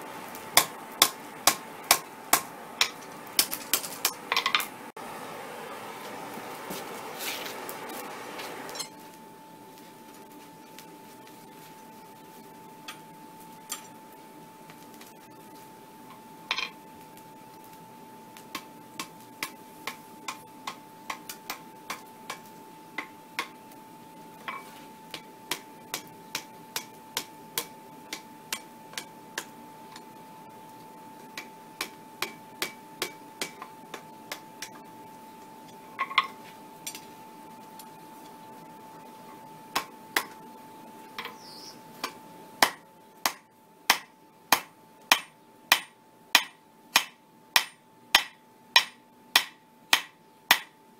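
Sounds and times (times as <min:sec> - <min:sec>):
hammer striking hot steel on anvil: 0:00.5 - 0:04.7, 0:08.7 - 0:09.1, 0:12.8 - 0:13.9, 0:16.1 - 0:16.8, 0:18.4 - 0:23.6, 0:24.4 - 0:30.1, 0:31.3 - 0:34.8, 0:39.7 - 0:40.4, 0:42.0 - 0:50.8.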